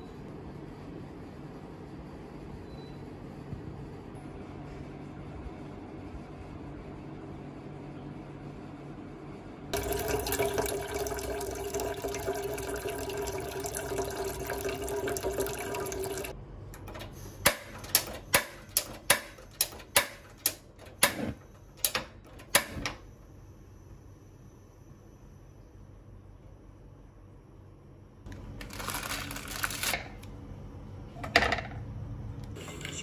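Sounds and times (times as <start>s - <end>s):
tap water running into saucepan: 9.8s - 16.3s.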